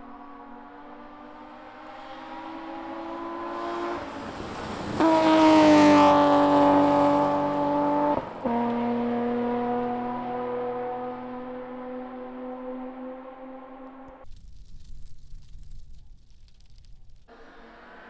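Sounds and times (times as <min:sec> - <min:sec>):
rally car engine at full throttle: 0:00.0 - 0:14.2
gravel and tyre noise: 0:00.0 - 0:18.0.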